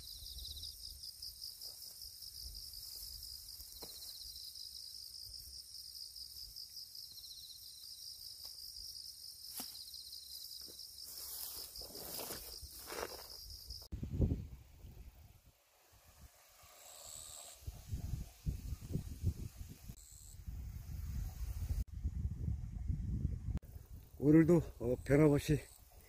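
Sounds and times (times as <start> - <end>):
grass rustling: 0.0 - 6.5, 7.2 - 13.9
insects trilling: 0.0 - 13.9, 16.4 - 17.7, 20.0 - 20.4.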